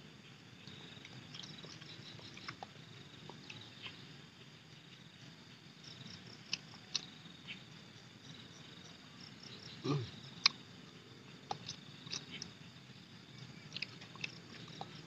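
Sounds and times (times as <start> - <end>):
high insect chirping: 0.0 - 15.0
mouth clicks and lip smacks: 6.5 - 7.1, 11.5 - 12.6, 13.7 - 15.0.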